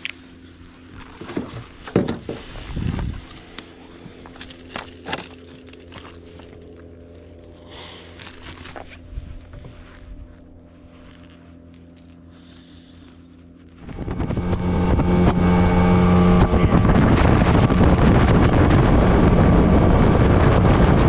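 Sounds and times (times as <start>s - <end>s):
steady low hum: 0.0s - 21.0s
knocks and rustling in boat: 0.8s - 7.0s.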